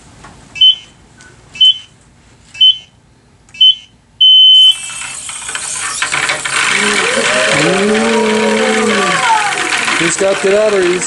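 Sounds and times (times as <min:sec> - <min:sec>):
electronic countdown beeps: 0:03.6 - 0:04.8.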